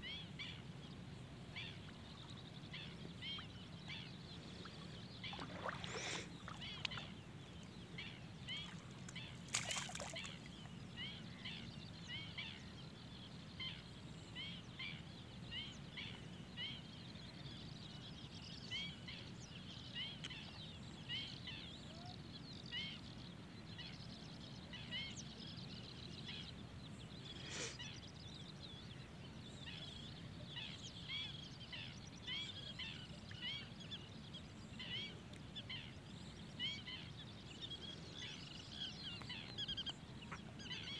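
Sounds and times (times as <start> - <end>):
birds chirping: 1.4 - 12.6.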